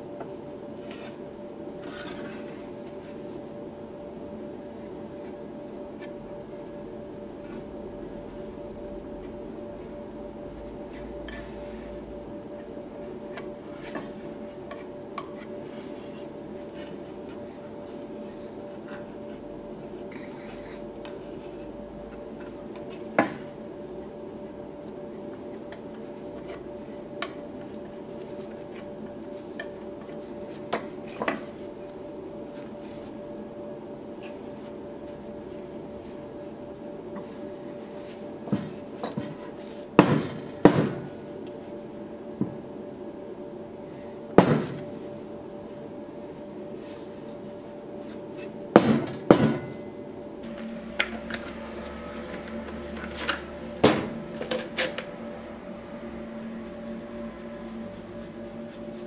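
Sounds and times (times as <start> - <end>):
steady hum: 0.0 - 59.0.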